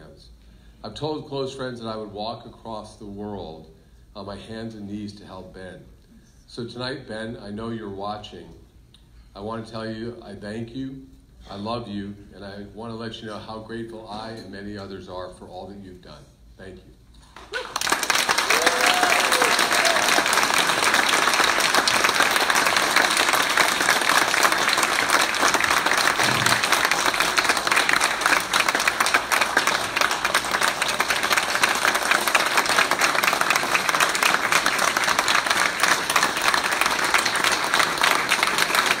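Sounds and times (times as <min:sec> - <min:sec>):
audience applauding: 0:17.4 - 0:39.0.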